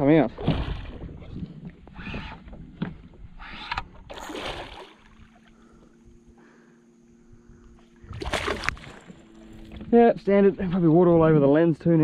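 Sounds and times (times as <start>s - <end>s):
faint steady hum: 0.0s - 12.0s
fish splashing in water: 4.1s - 5.6s, 8.1s - 9.2s.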